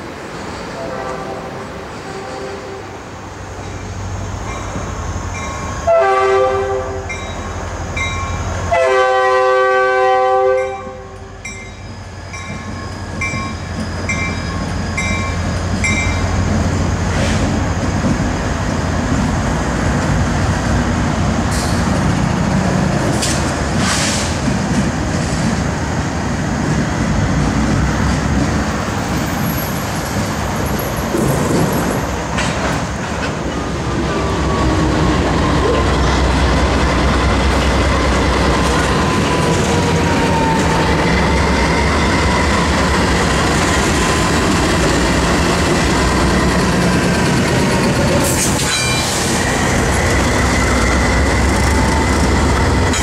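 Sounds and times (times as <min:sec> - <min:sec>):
locomotive horn blasts: 0:00.8 - 0:03.0, 0:05.8 - 0:07.2, 0:08.7 - 0:11.4
crossing bell dinging: 0:03.6 - 0:05.8, 0:07.0 - 0:08.5, 0:10.6 - 0:16.4, 0:48.7 - 0:49.1.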